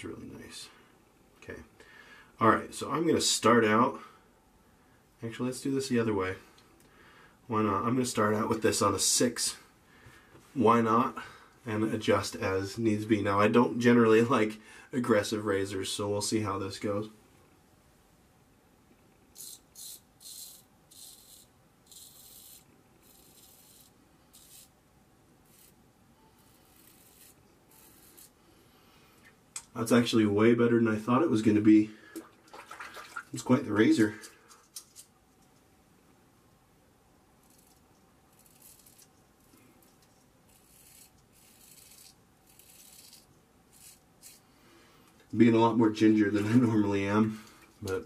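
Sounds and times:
razor scraping stubble: 19.4s - 24.8s, 25.4s - 28.4s, 37.4s - 44.5s.

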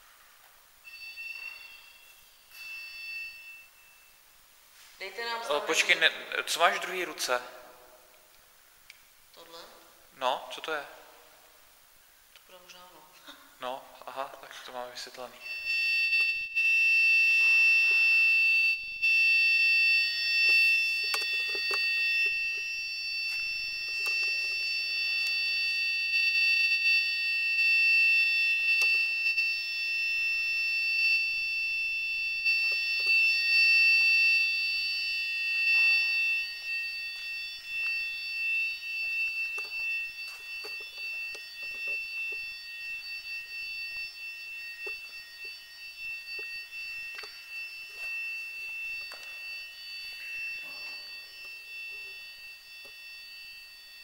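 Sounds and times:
high-pitched electronic whine: 0.7s - 4.6s, 17.2s - 54.0s.

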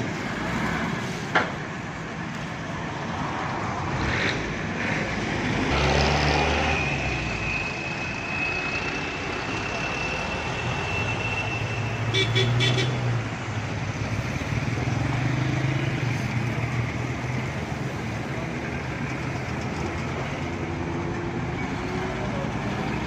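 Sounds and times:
heavy diesel engines running: 0.0s - 23.0s
road traffic noise: 0.0s - 23.0s
vehicle horn toots: 10.9s - 13.0s.

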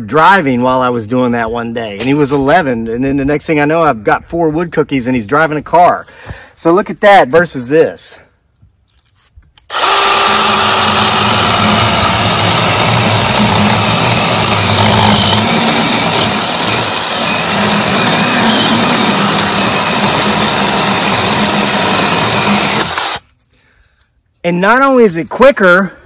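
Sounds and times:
mini chainsaw cutting log: 9.6s - 23.3s.

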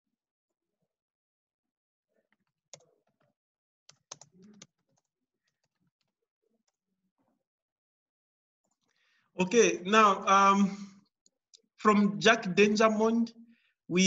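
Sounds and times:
computer keyboard clicking: 3.9s - 6.1s.

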